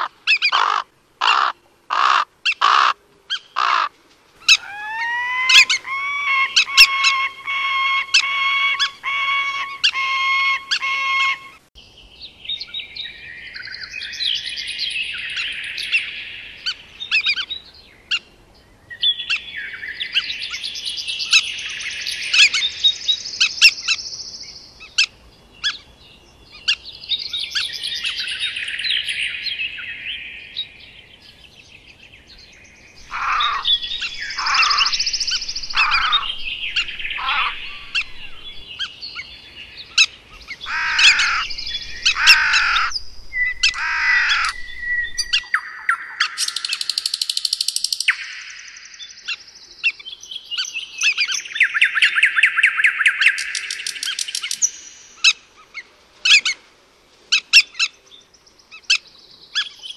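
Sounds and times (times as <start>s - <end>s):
bird calls falling in pitch: 0.0s - 11.6s, 33.0s - 38.9s, 40.6s - 46.8s
songbirds twittering: 0.0s - 59.9s.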